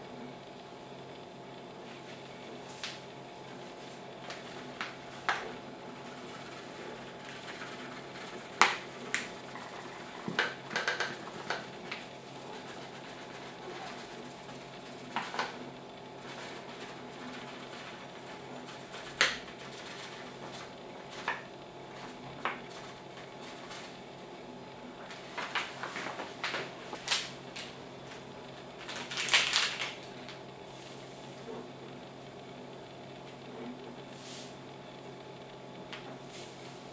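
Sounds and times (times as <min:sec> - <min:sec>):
flour pouring hiss: 0:01.8 - 0:24.0, 0:34.1 - 0:34.6, 0:36.2 - 0:36.9
paper bag crackling: 0:03.8 - 0:15.6, 0:16.2 - 0:24.0, 0:25.0 - 0:30.4
plastic sachet crinkling: 0:28.8 - 0:30.4.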